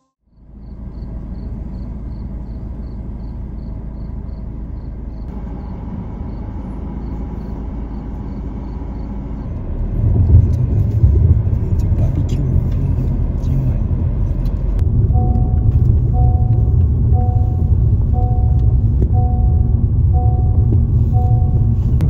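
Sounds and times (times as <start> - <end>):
car engine rumbling: 0.0 - 22.0
insect chirping: 0.3 - 9.5.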